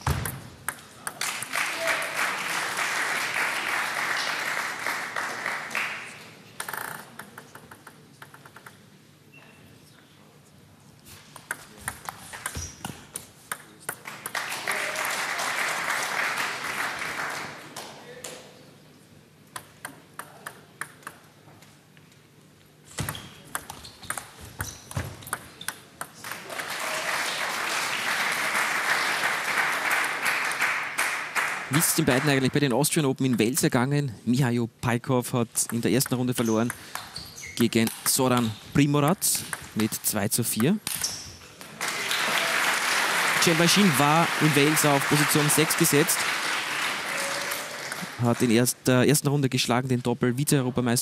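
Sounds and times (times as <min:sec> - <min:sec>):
crowd applause: 0:01.2 - 0:06.1, 0:14.3 - 0:17.8, 0:26.2 - 0:32.5, 0:41.8 - 0:48.7
table tennis ball clicking: 0:06.6 - 0:08.8, 0:23.5 - 0:26.2.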